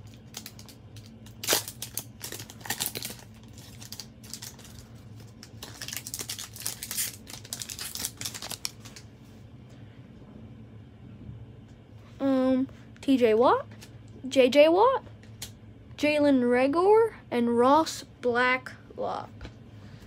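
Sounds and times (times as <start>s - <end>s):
wrapper tearing and crinkling: 0.0s - 9.0s.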